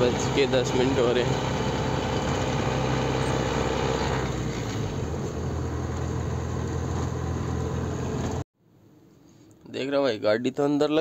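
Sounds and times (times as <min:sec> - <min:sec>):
truck engine droning: 0:00.0 - 0:08.4
road noise: 0:00.0 - 0:08.5.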